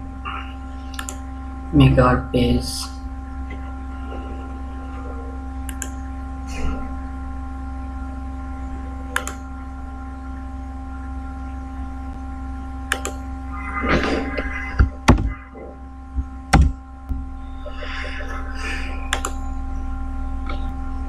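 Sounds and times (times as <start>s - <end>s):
electrical hum: 0.0s - 21.0s
microphone hiss and buzz: 0.0s - 21.0s
mouse clicks: 0.9s - 1.2s, 5.6s - 6.0s, 9.2s - 9.4s, 12.9s - 13.2s, 19.1s - 19.4s.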